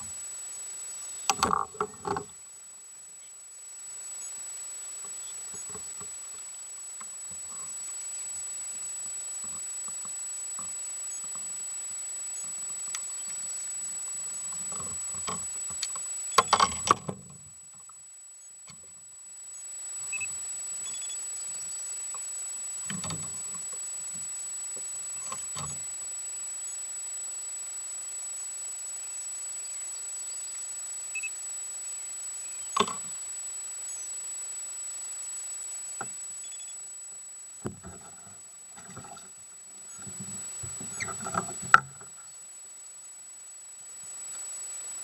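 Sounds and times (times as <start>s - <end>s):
wind: 0.0s - 45.0s
small clicks and knocks: 1.2s - 2.4s, 14.5s - 18.0s, 22.1s - 23.8s, 25.2s - 25.8s, 32.7s - 33.1s, 39.9s - 42.2s
thin high steady tone: 2.7s - 17.0s, 19.2s - 45.0s.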